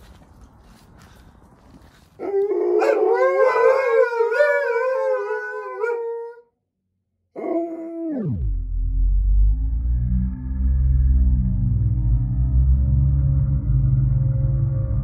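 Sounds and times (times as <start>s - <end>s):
dogs howling: 2.2s - 6.5s, 7.4s - 8.2s.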